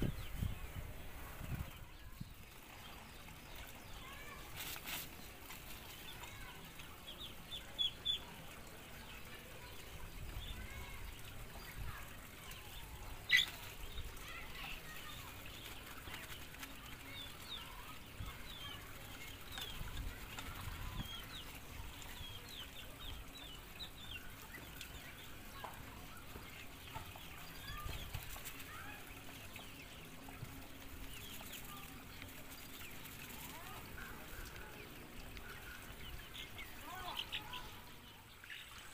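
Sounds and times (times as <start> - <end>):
chickens clucking: 0.0 - 38.9
high peeps and chirps: 12.8 - 14.2.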